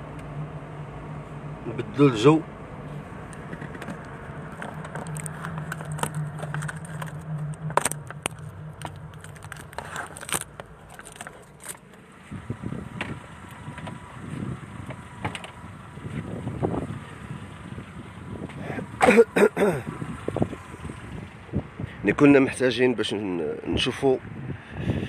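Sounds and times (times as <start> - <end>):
car driving hum: 0.0 - 25.0
clicks and rattles: 3.4 - 12.0
rustling: 3.5 - 12.0.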